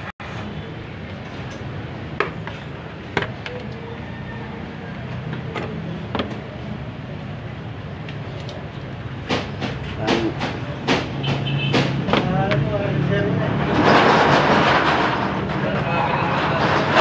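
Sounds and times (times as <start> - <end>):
clicks and knocks of car parts: 2.2 - 3.8, 5.3 - 6.6, 8.1 - 12.8.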